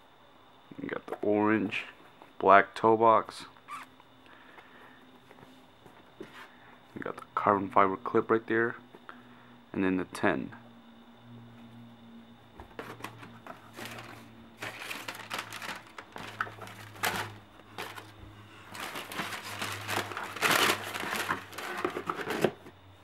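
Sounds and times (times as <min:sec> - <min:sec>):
tissue paper crinkling: 0:13.7 - 0:22.5.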